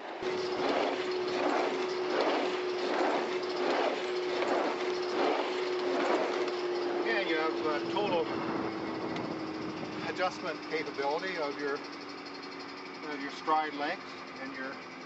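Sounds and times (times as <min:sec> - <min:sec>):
exercise machine hum: 0:00.0 - 0:15.0
rhythmic mechanical rasp: 0:00.0 - 0:15.0.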